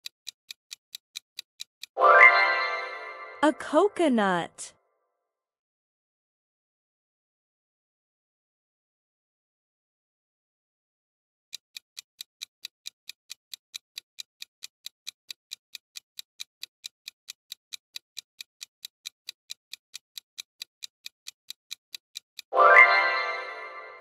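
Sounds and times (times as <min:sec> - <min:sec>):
clock ticking: 0:00.0 - 0:04.5, 0:11.5 - 0:24.0.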